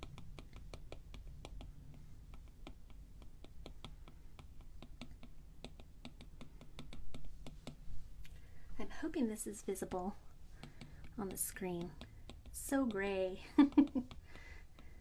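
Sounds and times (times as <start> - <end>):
stylus tapping on glass screen: 0.0 - 7.8.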